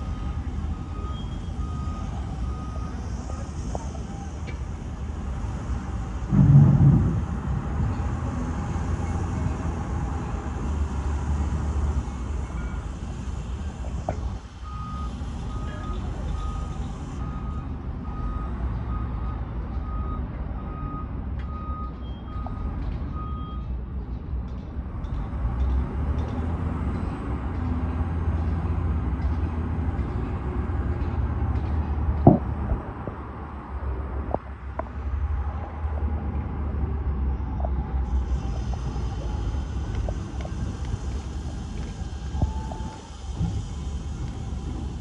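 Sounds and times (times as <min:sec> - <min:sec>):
reversing alarm beeping: 0:00.0 - 0:04.5, 0:14.6 - 0:23.7, 0:38.4 - 0:45.0
low engine rumble: 0:00.0 - 0:45.0
sharp knock: 0:06.3 - 0:07.8.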